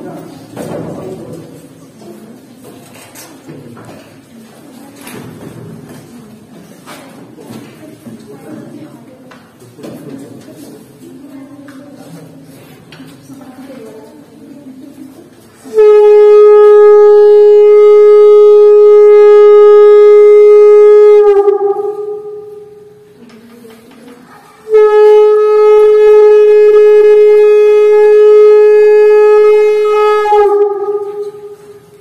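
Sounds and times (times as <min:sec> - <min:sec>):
conch shell blasts: 0:15.7 - 0:23.1, 0:24.6 - 0:31.8.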